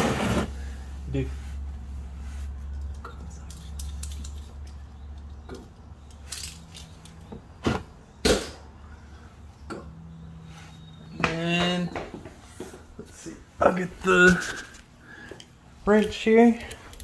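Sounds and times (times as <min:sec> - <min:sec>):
metal hand tools clinking: 0:02.8 - 0:04.8, 0:06.0 - 0:07.2.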